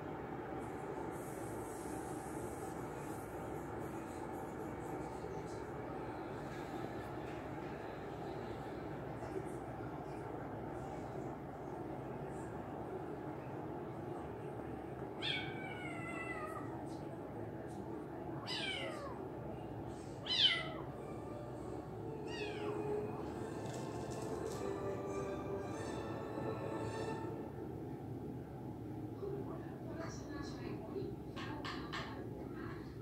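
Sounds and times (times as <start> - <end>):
kitten meowing: 18.5 - 19.2, 20.3 - 20.8, 22.3 - 22.8
background music with held tones: 20.6 - 27.9.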